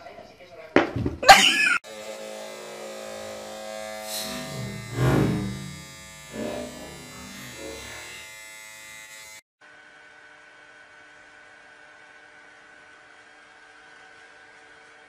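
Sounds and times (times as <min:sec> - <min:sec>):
electric motor buzzing: 0:01.8 - 0:09.4.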